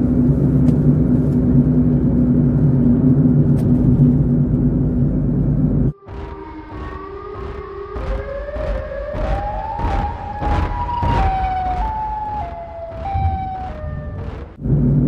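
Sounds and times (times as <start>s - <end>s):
low rumble: 0.0s - 15.0s
siren-like wail: 5.9s - 14.9s
regular thuds: 6.1s - 14.7s.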